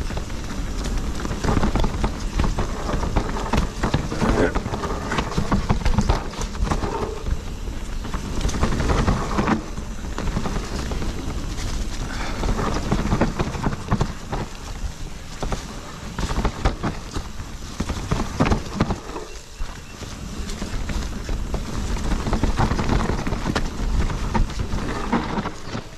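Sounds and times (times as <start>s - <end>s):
bike knocks and rattles: 0.0s - 25.9s
wind and tyres rumbling: 0.0s - 25.9s.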